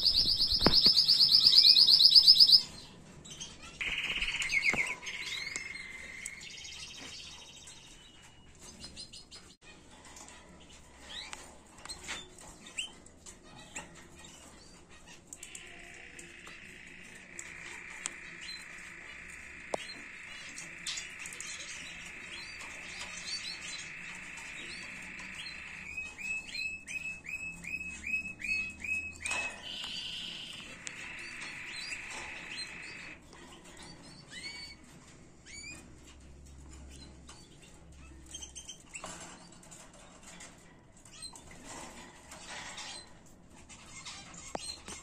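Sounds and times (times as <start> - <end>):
sharp clicks: 0.0 - 2.3
canary singing: 0.0 - 9.5, 10.1 - 45.0.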